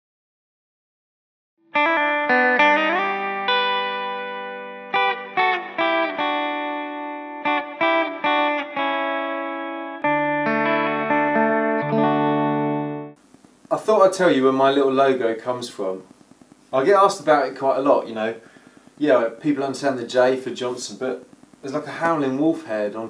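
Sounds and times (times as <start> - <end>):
guitar picking notes and chords: 1.6 - 13.2.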